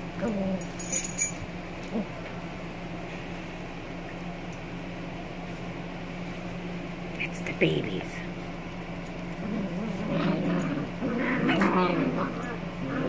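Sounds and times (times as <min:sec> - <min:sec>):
steady low hum: 0:00.0 - 0:13.0
puppies chewing and tearing meat: 0:08.4 - 0:13.0.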